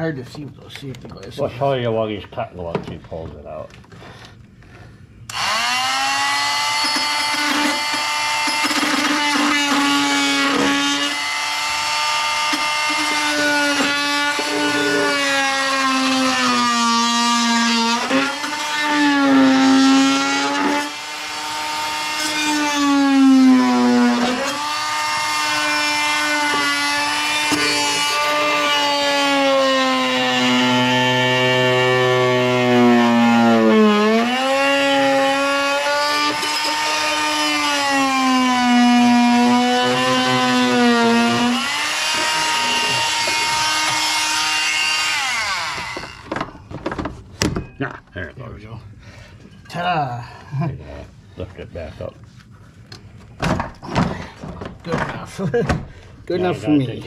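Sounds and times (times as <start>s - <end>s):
oscillating tool motor whine: 5.3s - 46.3s.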